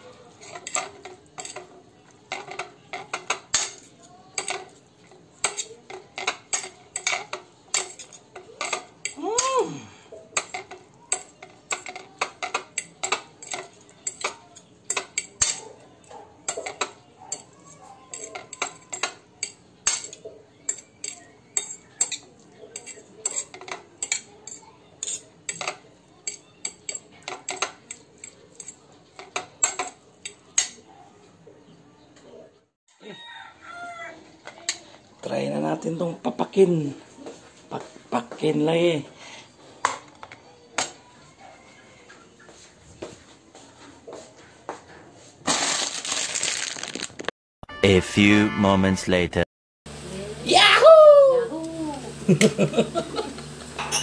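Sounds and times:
cutlery clinking on ceramic plate: 0.4s - 9.6s, 10.2s - 30.9s, 53.7s - 54.0s.

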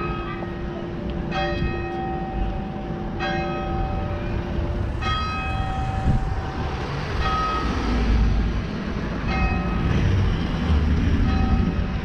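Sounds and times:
church bells ringing: 0.0s - 10.3s, 11.2s - 12.0s
low rumble: 3.8s - 12.0s.

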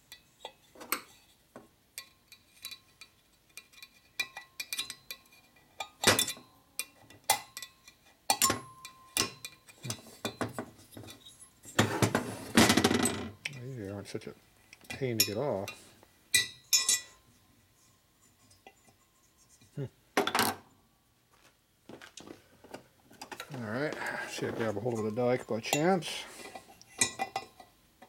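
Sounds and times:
hand tools clinking on metal: 16.4s - 17.2s, 23.2s - 27.7s.

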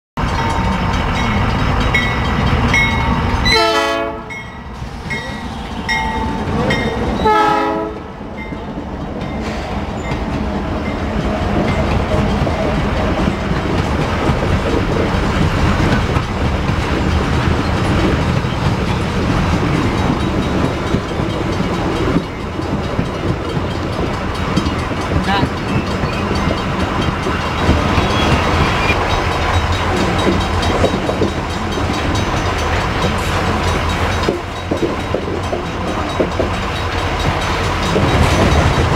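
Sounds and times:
locomotive horn blasts: 3.5s - 4.5s, 7.2s - 8.2s
train wheels clattering: 4.4s - 38.9s.

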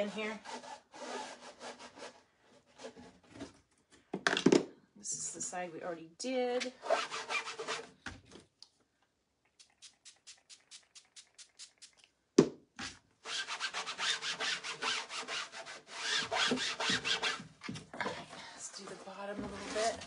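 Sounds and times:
rag rubbing on board: 6.8s - 7.9s, 13.3s - 17.5s.

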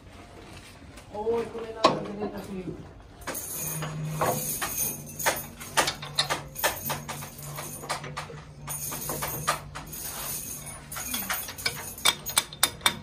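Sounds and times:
metal rods clinking: 3.2s - 13.0s.

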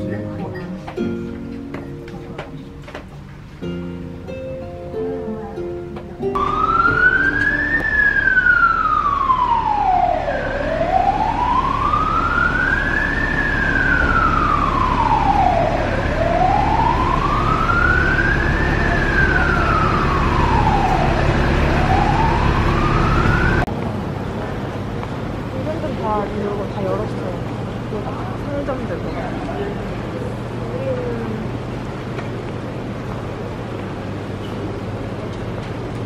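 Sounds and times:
siren wailing: 6.3s - 23.7s.

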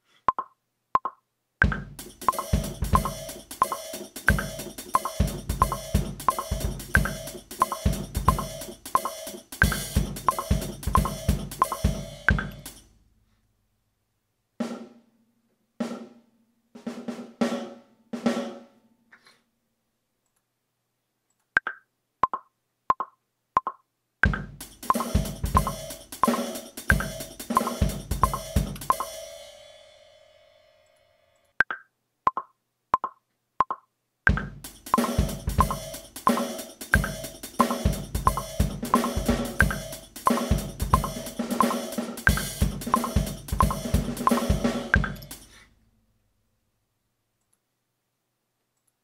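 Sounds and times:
metronome ticking: 0.3s - 12.8s, 21.6s - 29.2s, 31.6s - 45.5s
hip-hop drum beat: 1.6s - 12.9s, 24.2s - 29.6s, 34.3s - 45.5s.

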